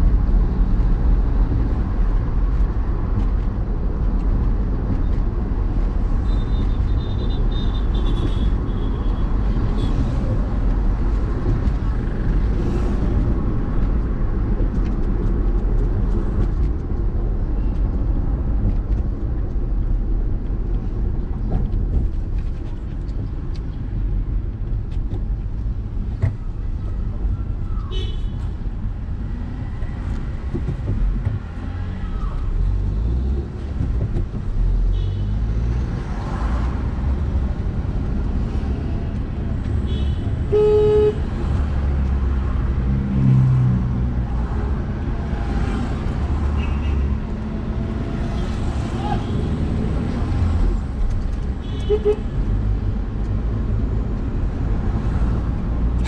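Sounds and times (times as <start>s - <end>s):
car engine and road rumble: 0.0s - 56.0s
car horn toots: 39.9s - 41.2s, 51.6s - 52.3s.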